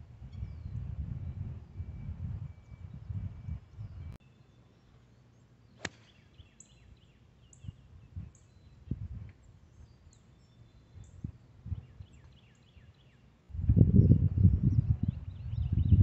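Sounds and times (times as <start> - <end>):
wind rumble on microphone: 0.0 - 4.2, 7.5 - 10.0, 10.9 - 12.3, 13.5 - 16.0
birds chirping: 2.6 - 13.3
golf club striking ball: 5.8 - 6.2.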